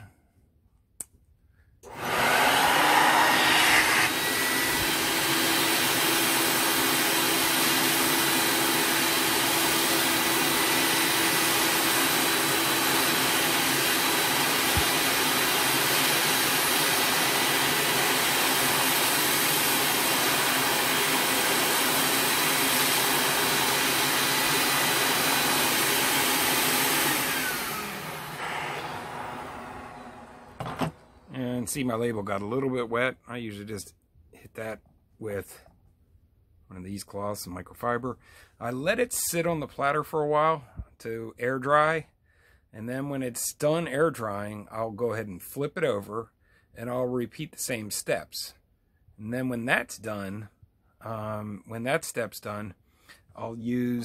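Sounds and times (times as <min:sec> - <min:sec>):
shop vac running: 0:01.8 - 0:31.6.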